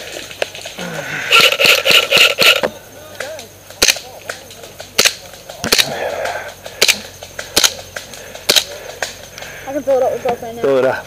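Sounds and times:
airsoft gun firing shots: 1.3s - 2.7s.

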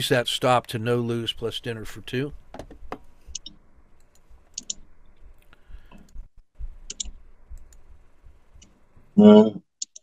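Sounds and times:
computer mouse clicking: 3.3s - 6.2s, 6.8s - 7.9s, 9.8s - 10.0s.

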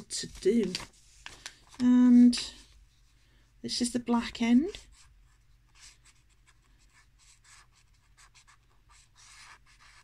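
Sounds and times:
brush pen scratching on paper: 4.7s - 10.0s.

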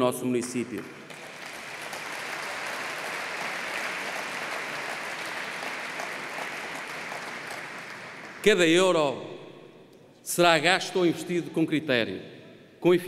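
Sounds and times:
audience clapping: 0.4s - 9.1s.

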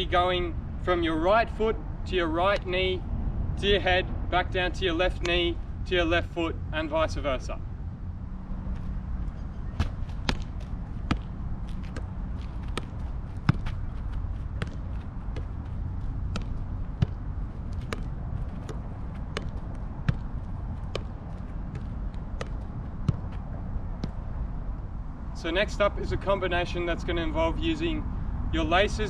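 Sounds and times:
low steady rumble: 0.0s - 29.0s
soccer ball touches: 9.8s - 24.3s.

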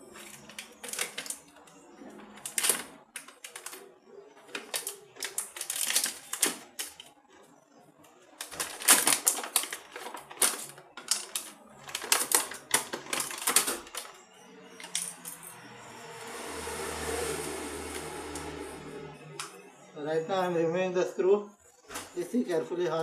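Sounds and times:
packaging crackling: 4.5s - 7.1s, 8.4s - 14.2s
low steady hum: 14.4s - 20.2s.

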